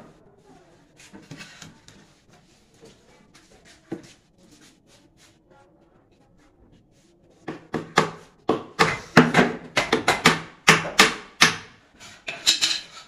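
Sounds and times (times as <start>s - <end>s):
hammer knocking on wood panel: 7.5s - 11.7s.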